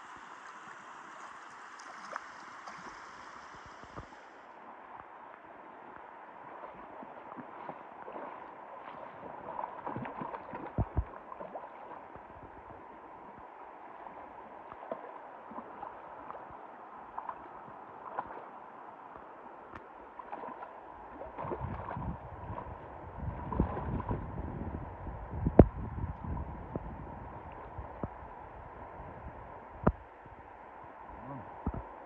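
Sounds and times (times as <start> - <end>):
splashing in water: 0.0 - 4.4, 6.4 - 12.2, 17.1 - 18.5, 20.1 - 24.3
river water gurgling over stones: 0.0 - 24.7.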